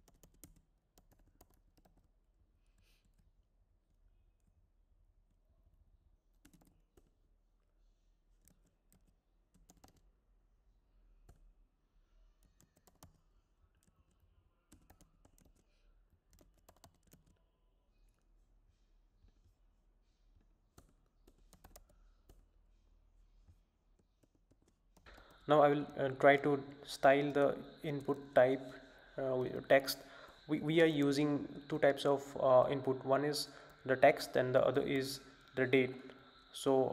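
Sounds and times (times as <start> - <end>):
typing on computer keyboard: 0.0 - 2.1, 6.4 - 7.2, 8.4 - 10.0, 12.4 - 13.2, 13.8 - 15.7, 16.3 - 17.4, 20.8 - 22.4.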